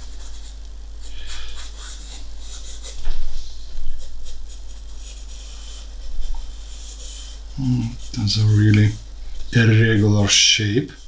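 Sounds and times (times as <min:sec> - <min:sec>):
pencil scratching on paper: 0:01.2 - 0:09.0.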